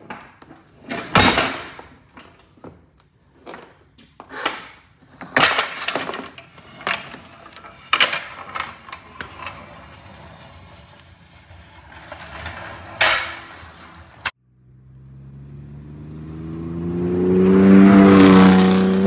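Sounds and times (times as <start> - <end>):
floor jack clanking and rattling: 0.0 - 2.8, 3.4 - 14.4.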